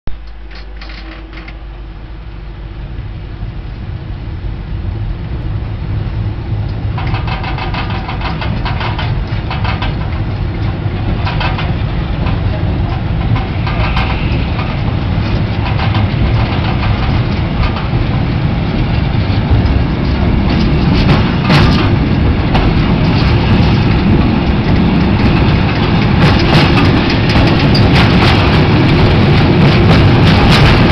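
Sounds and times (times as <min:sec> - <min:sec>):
train rumble: 0:00.1 - 0:30.9
wagons clanking and rattling: 0:06.7 - 0:30.9.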